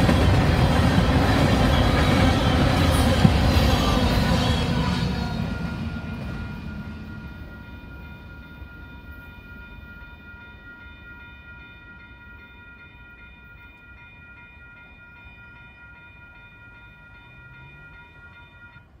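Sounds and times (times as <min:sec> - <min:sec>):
crossing bell ringing: 0:00.0 - 0:19.0.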